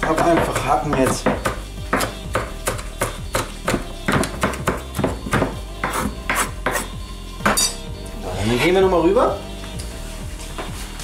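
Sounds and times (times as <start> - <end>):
knife chopping on wooden board: 0.0 - 7.7.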